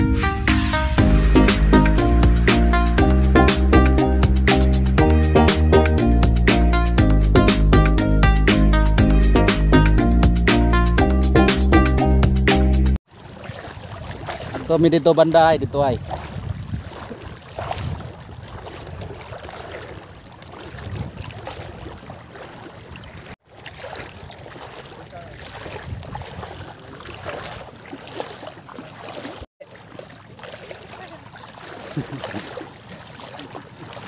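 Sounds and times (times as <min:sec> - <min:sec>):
water sloshing around wading legs: 0:13.0 - 0:34.0
wind rumbling on microphone: 0:13.4 - 0:24.7, 0:25.3 - 0:27.7.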